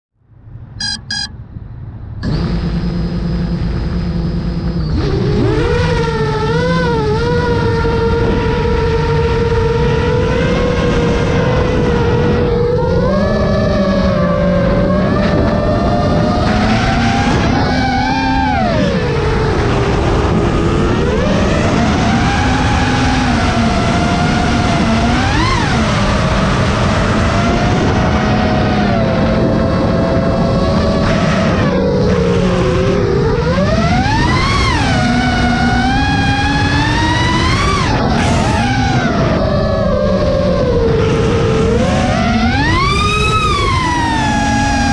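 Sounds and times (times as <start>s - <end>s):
drone motors whining: 0.8s - 1.3s, 2.2s - 9.5s, 31.2s - 44.9s
short beeps: 0.8s - 1.4s.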